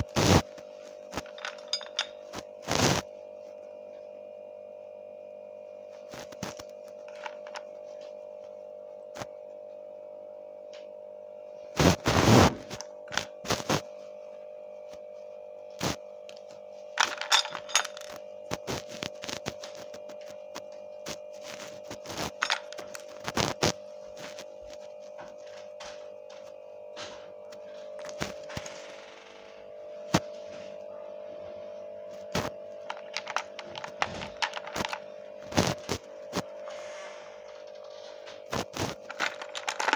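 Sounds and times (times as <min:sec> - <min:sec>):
plastic toys clicking and knocking: 0:01.2 - 0:02.1, 0:17.0 - 0:18.2, 0:32.9 - 0:35.0, 0:39.1 - 0:39.9.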